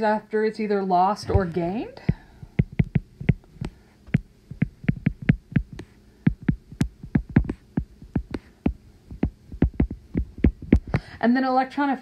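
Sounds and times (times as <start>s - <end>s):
stylus tapping on glass screen: 2.0s - 11.0s.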